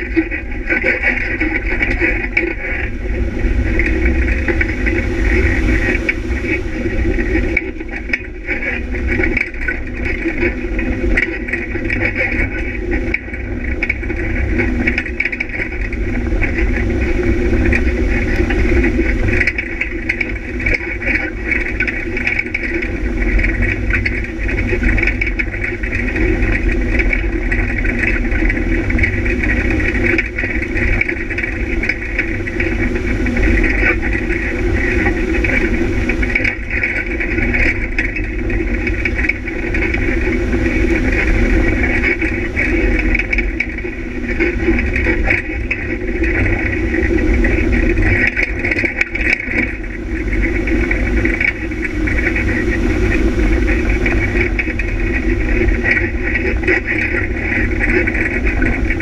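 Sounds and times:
constant low rumble: 0.0 - 59.0
off-road vehicle engine running: 0.0 - 59.0.

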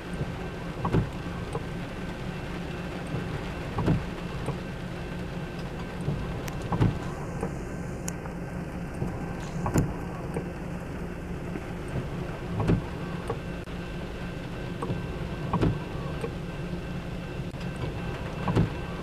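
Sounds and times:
windshield wiper thumps: 0.1 - 1.7, 3.0 - 4.6, 6.0 - 7.6, 8.9 - 10.5, 11.9 - 13.4, 14.8 - 16.4, 17.6 - 19.0.

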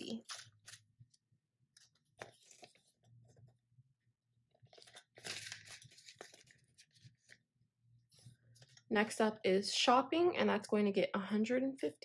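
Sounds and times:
paper banknotes rustling: 1.8 - 3.0, 4.7 - 7.4
plastic envelope crinkling: 4.6 - 7.4.

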